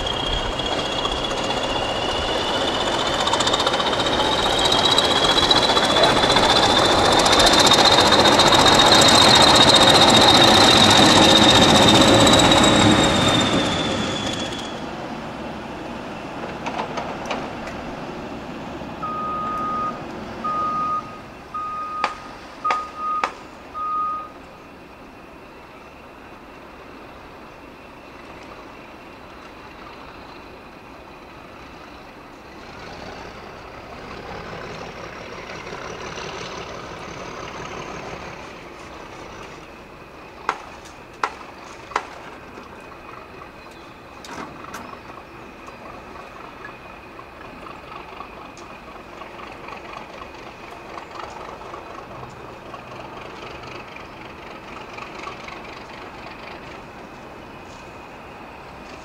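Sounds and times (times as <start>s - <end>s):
diesel locomotive hum: 0.0s - 59.0s.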